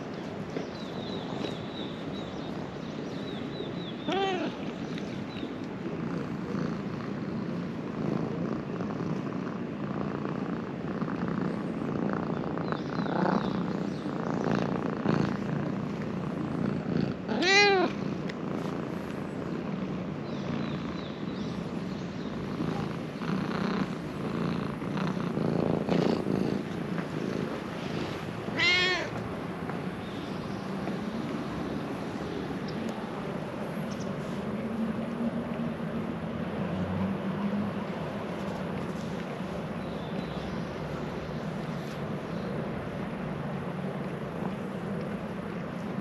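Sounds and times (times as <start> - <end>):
cat meowing: 4.1 - 4.6, 17.3 - 18.0, 28.5 - 29.2
cat purring: 4.6 - 34.4.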